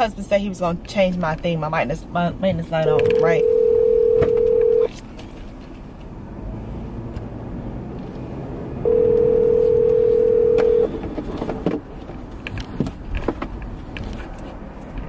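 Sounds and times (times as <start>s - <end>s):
car cabin road noise: 0.0s - 15.0s
telephone ringback tone: 2.9s - 4.9s, 8.8s - 10.9s.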